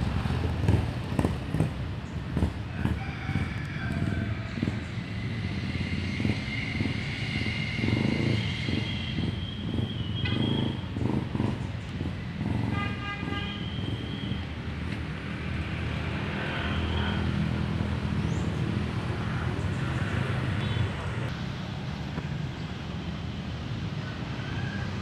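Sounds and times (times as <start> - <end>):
car horn toot: 10.0 - 10.8, 12.7 - 14.4.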